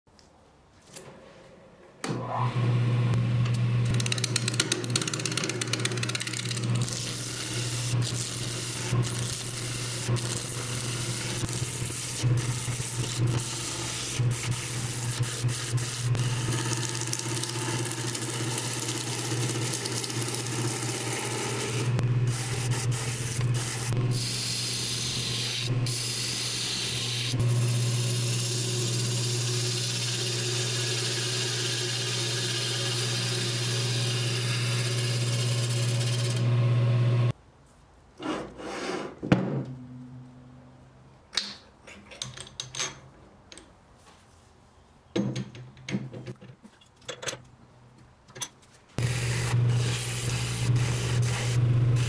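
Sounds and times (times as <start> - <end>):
lathe motor hum: 2.5 - 37.3, 49.0 - 52.0
turning tool scraping wood: 3.9 - 27.4, 49.0 - 52.0.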